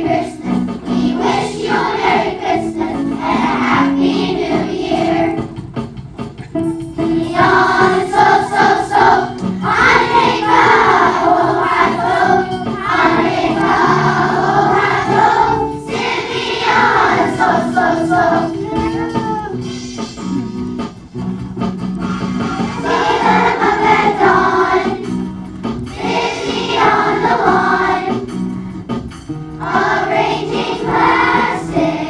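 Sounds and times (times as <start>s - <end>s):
children's choir singing: 0.0s - 5.6s, 6.9s - 18.9s, 22.4s - 25.3s, 25.9s - 28.5s, 29.5s - 32.0s
musical accompaniment: 0.0s - 32.0s.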